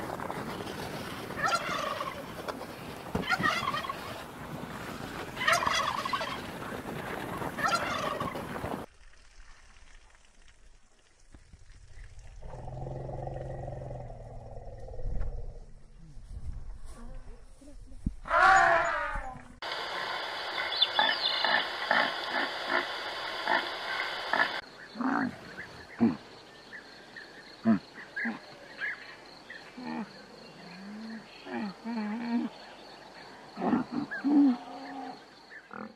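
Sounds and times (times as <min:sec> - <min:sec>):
wind-like noise: 0:00.0 - 0:09.8, 0:14.1 - 0:24.8
turkey gobbling: 0:01.4 - 0:02.3, 0:03.2 - 0:04.2, 0:05.4 - 0:06.4, 0:07.6 - 0:08.4
camel grunting: 0:12.4 - 0:15.3.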